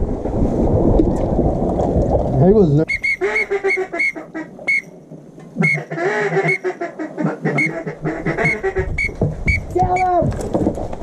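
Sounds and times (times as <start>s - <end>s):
duck quacking: 2.9s - 4.8s, 5.6s - 9.6s
short high peeps: 2.9s - 4.9s.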